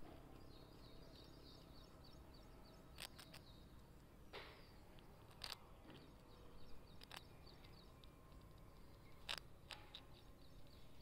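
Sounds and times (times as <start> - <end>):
faint birds chirping: 0.0 - 11.0
squirrel crunching rusk: 2.8 - 11.0.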